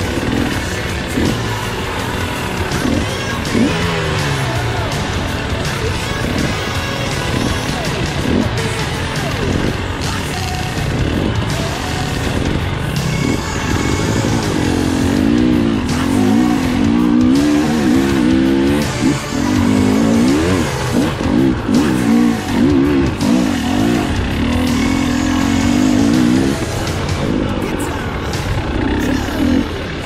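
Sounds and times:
dirt bike engine revving: 0.0s - 30.0s.

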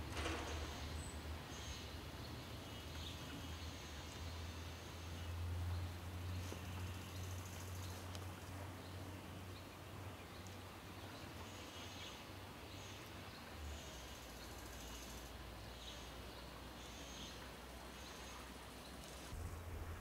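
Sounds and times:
distant diesel engine drone: 12.8s - 20.0s.

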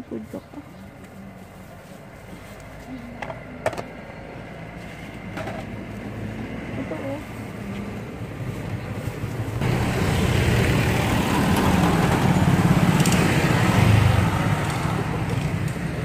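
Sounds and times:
motorcycle passing: 3.0s - 16.0s.

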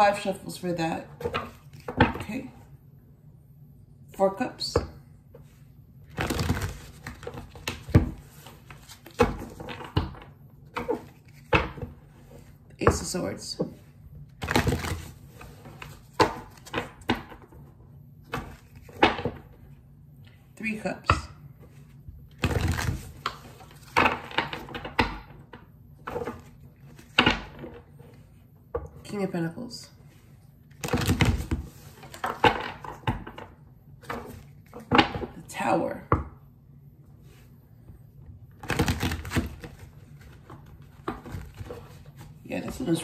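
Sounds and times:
cards being shuffled: 6.1s - 10.0s, 10.7s - 12.5s, 14.4s - 17.0s, 18.3s - 19.2s, 21.7s - 24.8s, 38.6s - 43.0s.

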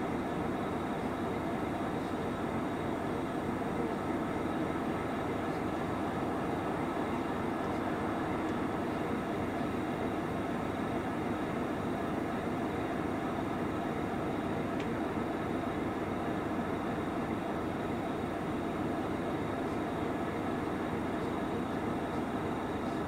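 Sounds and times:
diesel engines idling: 0.0s - 23.0s.

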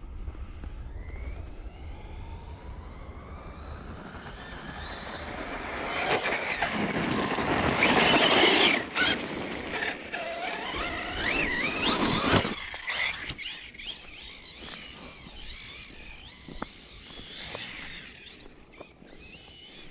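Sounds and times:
rc truck electric motor whine: 0.4s - 19.9s
tyres rushing over snowy gravel: 5.6s - 19.7s.

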